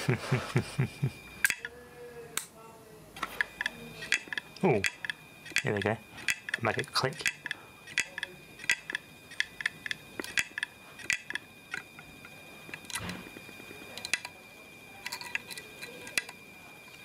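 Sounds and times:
high whine: 0.0s - 2.1s
hard drive arm clicking: 3.2s - 14.4s.

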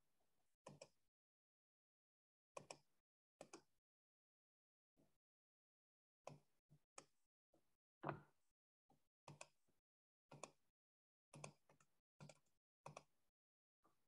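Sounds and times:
computer mouse clicks: 2.6s - 2.8s, 3.4s - 3.7s, 11.4s - 13.1s.

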